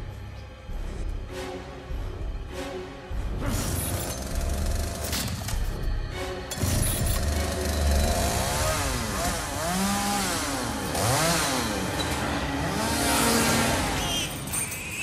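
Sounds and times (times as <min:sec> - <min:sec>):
chainsaw engine revving: 0:07.2 - 0:14.0.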